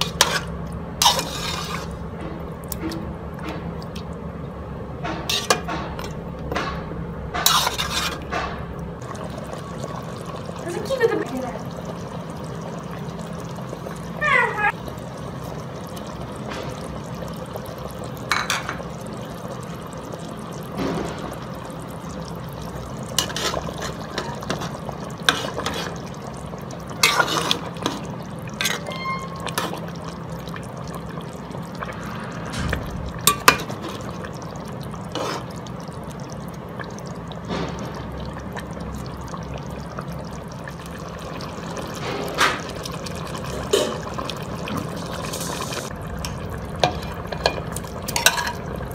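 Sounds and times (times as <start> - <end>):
stew bubbling in a pot: 0.0 - 48.9
steady low hum: 30.4 - 41.0.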